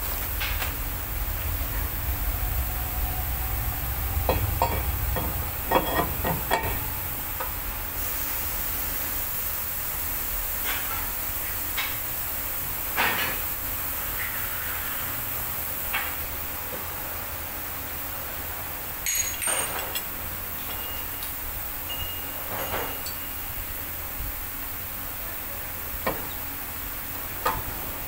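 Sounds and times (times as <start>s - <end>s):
steady hiss: 0.0s - 19.0s, 19.8s - 28.0s
metal clinks and knocks: 4.3s - 6.9s, 19.1s - 20.0s.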